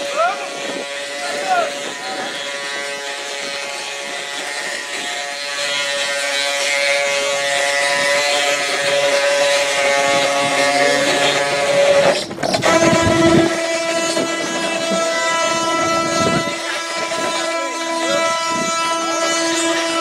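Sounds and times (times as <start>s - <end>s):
wooden axle whining drone: 0.0s - 20.0s.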